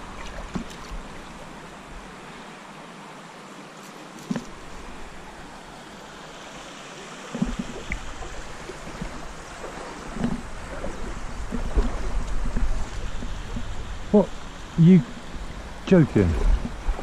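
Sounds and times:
stream running over shallow bed: 0.0s - 17.0s
wind buffeting the microphone: 8.8s - 17.0s.

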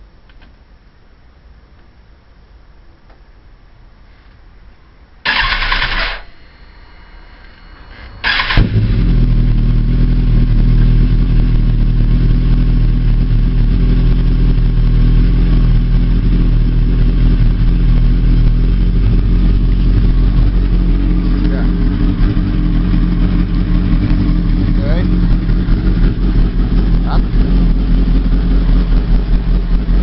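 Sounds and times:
motorcycle starter cranking: 5.3s - 6.2s, 8.2s - 8.8s
motorcycle engine idling: 8.3s - 30.0s.

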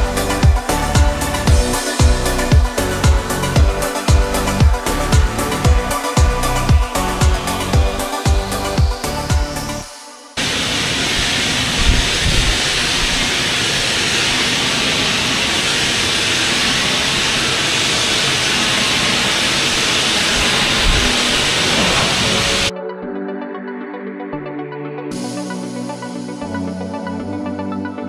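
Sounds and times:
pressure washer spraying water: 0.0s - 9.8s, 10.4s - 22.7s
electronic music: 0.0s - 10.5s, 20.3s - 28.0s.

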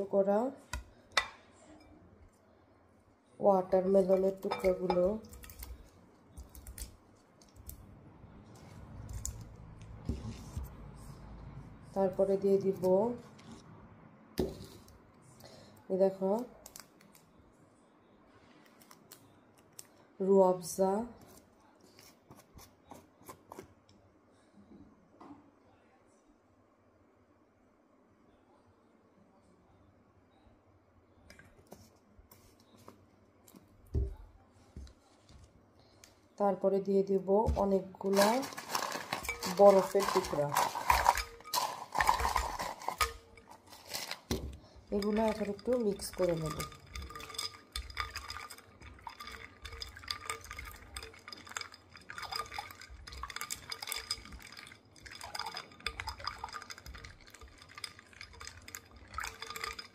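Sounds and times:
spoon clinking against glass: 4.1s - 5.6s, 38.2s - 44.1s, 45.0s - 59.9s
liquid sloshing in bowl: 37.6s - 59.9s.

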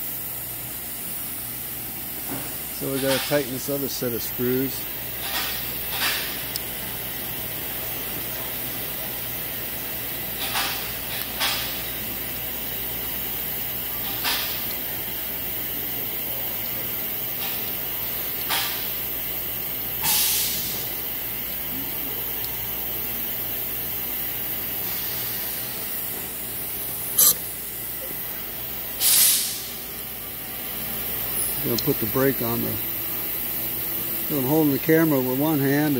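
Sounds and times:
steady hiss: 1.1s - 8.0s, 10.0s - 35.9s
hex key tightening screws: 27.2s - 27.4s.

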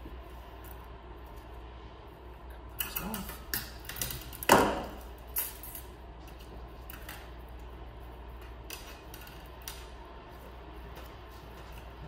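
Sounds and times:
low steady hum: 0.0s - 12.0s
wire clicks and scrapes: 2.8s - 12.0s.

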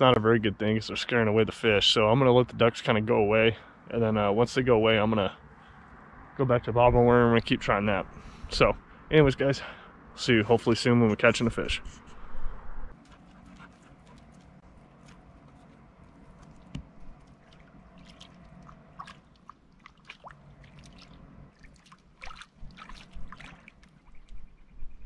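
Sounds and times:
lake water lapping on rocks: 13.5s - 24.4s.

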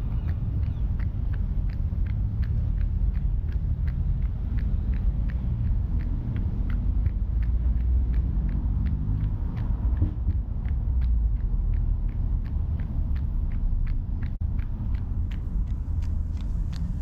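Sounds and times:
footsteps on wet pavement: 0.0s - 17.0s
low rumble of street traffic: 0.0s - 17.0s.

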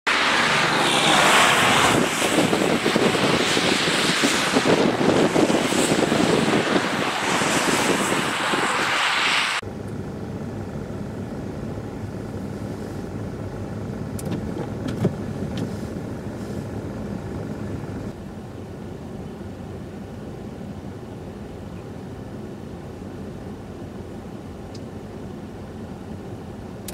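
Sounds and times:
blizzard wind rushing: 0.1s - 9.6s
passing road traffic: 0.1s - 18.2s
low vehicle hum: 0.1s - 26.9s.

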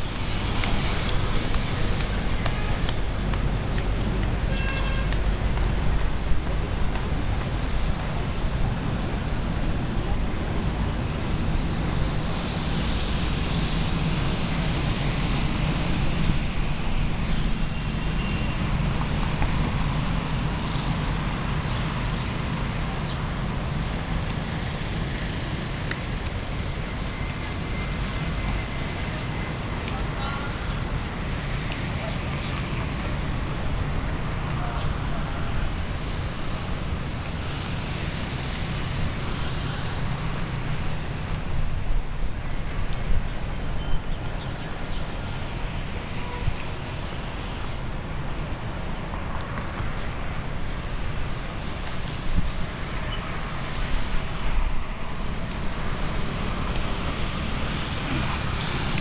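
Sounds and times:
wind rumble on microphone: 0.0s - 59.0s.

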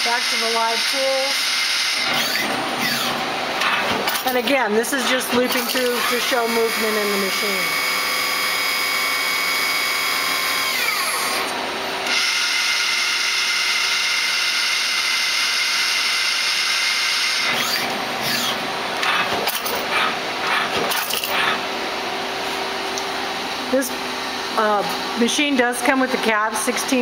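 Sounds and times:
machine whirs: 0.0s - 21.8s
lathe spindle whine: 5.6s - 18.6s.

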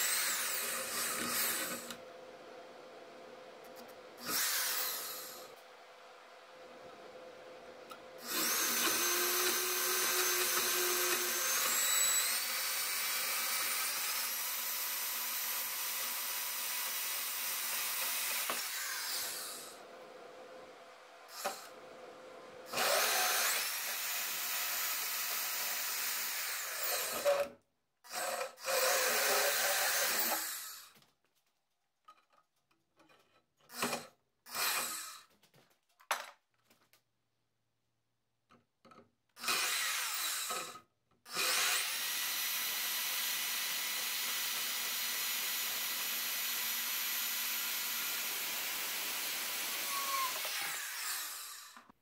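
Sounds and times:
bandsaw cutting metal: 0.0s - 2.0s, 4.2s - 5.5s, 8.2s - 19.8s, 41.4s - 51.9s.

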